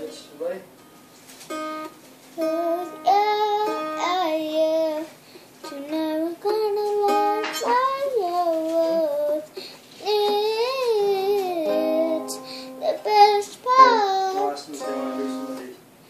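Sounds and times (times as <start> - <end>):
acoustic guitar strumming: 0.0 - 15.8
girl singing: 2.4 - 15.6.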